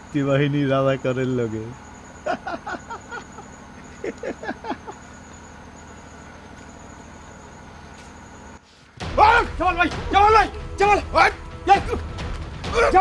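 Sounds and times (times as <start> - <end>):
crickets chirring: 0.0 - 8.6
man laughing: 2.2 - 5.1.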